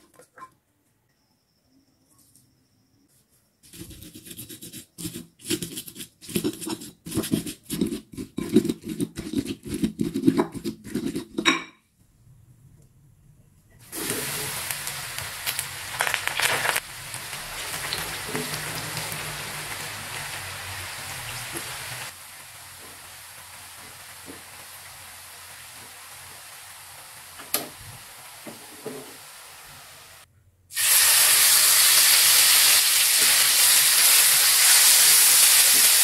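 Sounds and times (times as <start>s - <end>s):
stone pestle grinding: 3.7s - 11.6s
frying sizzle: 13.8s - 36.0s
food hissing in hot oil: 13.9s - 36.0s.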